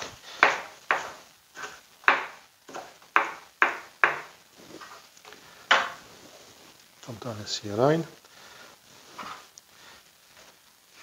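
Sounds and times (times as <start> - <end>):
knife chopping on plastic board: 0.4 - 4.3.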